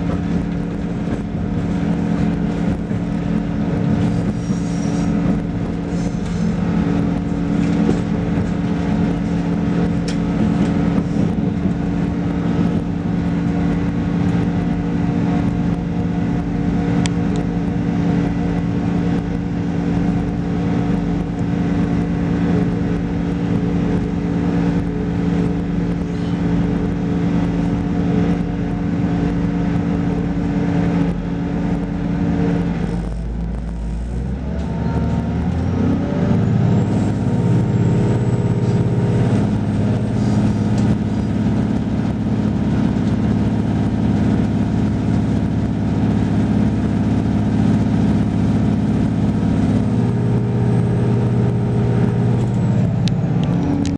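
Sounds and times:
diesel railcar engine accelerating: 0:00.0 - 0:53.9.

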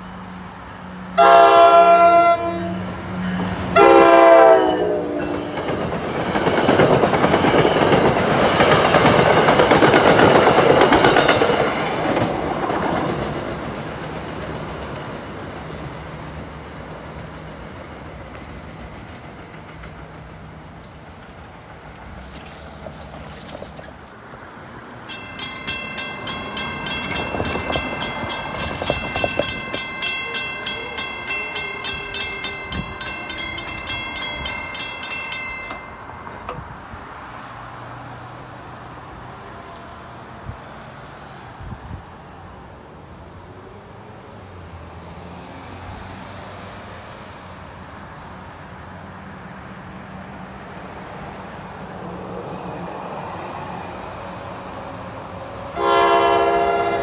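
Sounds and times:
train rumbling: 0:00.0 - 0:57.0
crossing warning bell ringing: 0:01.2 - 0:12.2, 0:25.0 - 0:36.9, 0:55.8 - 0:57.0.

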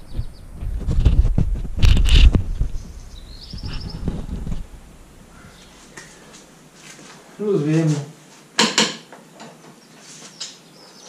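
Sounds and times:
bird trill: 0:02.8 - 0:04.2.

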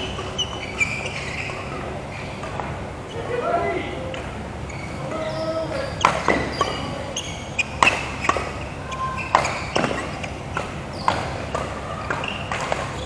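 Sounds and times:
shoes squeaking on court floor: 0:00.0 - 0:03.4, 0:04.2 - 0:13.0
rackets hitting shuttlecock: 0:05.3 - 0:13.0.

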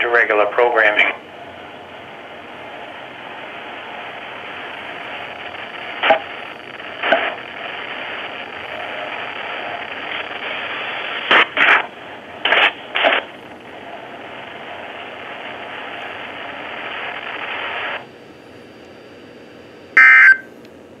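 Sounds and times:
radio static hiss: 0:00.0 - 0:21.0
high electronic beep: 0:20.0 - 0:20.4.

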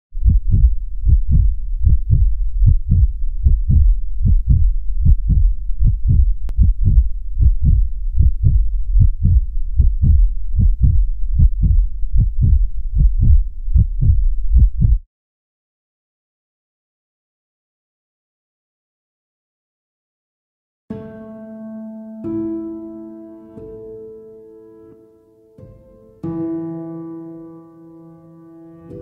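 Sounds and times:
heartbeat thumps: 0:00.2 - 0:15.0.

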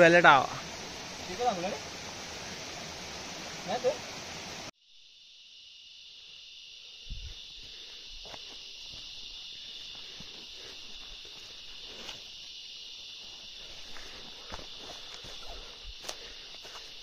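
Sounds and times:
high-pitched insect chorus: 0:00.0 - 0:17.0
footsteps on trail: 0:07.1 - 0:17.0.

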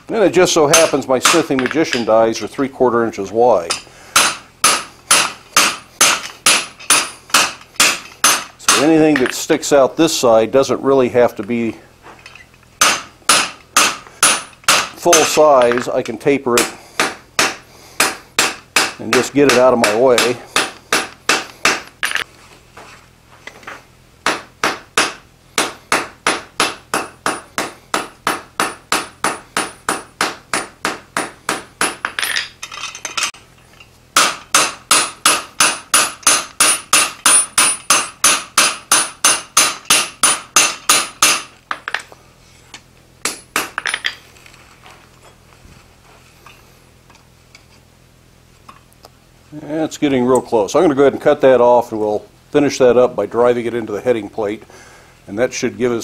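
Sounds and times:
hammer striking metal on anvil: 0:00.7 - 0:02.1, 0:03.7 - 0:09.3, 0:12.8 - 0:15.9, 0:16.6 - 0:22.2, 0:24.2 - 0:32.4, 0:34.2 - 0:41.9.

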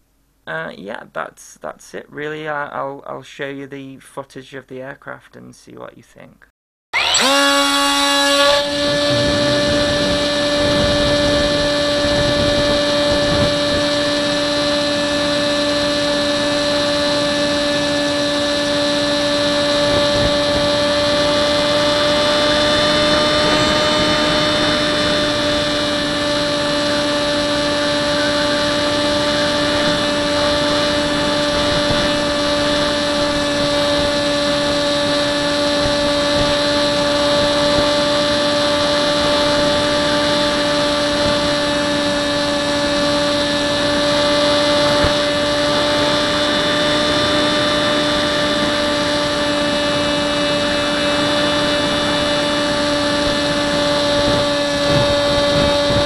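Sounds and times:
electric motor and propeller whine: 0:07.0 - 0:56.0
wind noise: 0:08.4 - 0:56.0.

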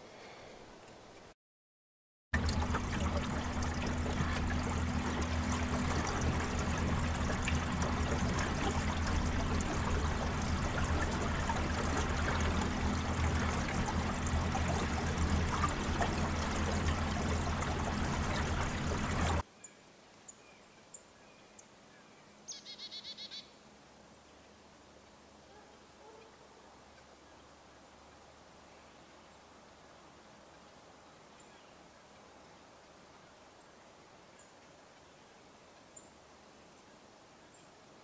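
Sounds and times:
low steady hum: 0:02.4 - 0:19.4
rushing water-like noise: 0:02.4 - 0:19.4
faint bird chirps: 0:19.6 - 0:23.5.

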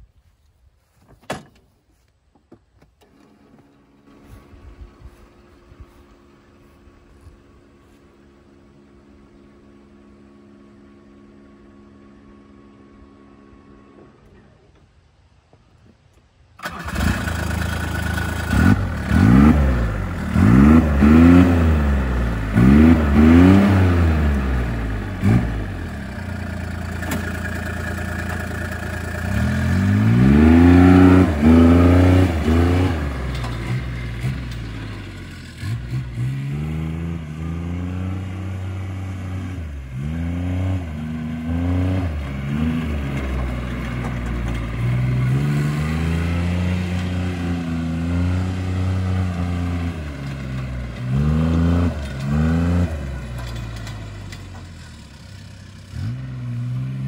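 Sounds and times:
diesel engine revving: 0:16.6 - 0:57.0.

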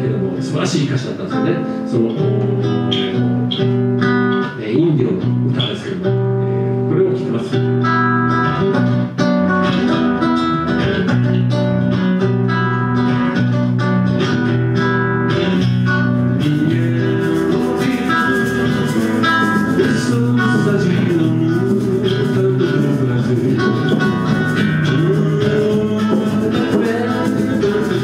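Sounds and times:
guitar chords: 0:00.0 - 0:28.0
percussion with cymbals: 0:16.5 - 0:28.0.

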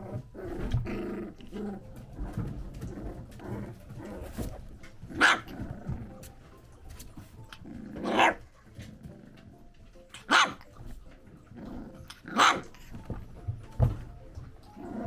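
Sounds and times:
dog barking: 0:05.1 - 0:05.6, 0:08.0 - 0:08.4, 0:10.2 - 0:10.7, 0:12.3 - 0:12.8.

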